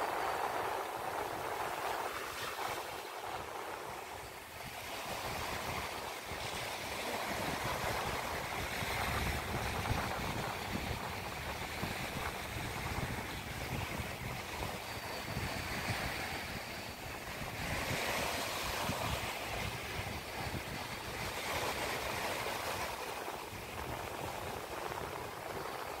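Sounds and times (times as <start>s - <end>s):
small waves on sandy beach: 0.0s - 26.0s
wind buffeting microphone: 0.0s - 26.0s.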